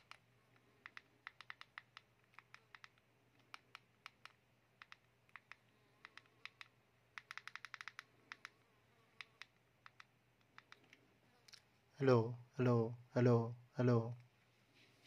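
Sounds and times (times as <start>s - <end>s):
phone keypad clicks: 0.8s - 8.5s.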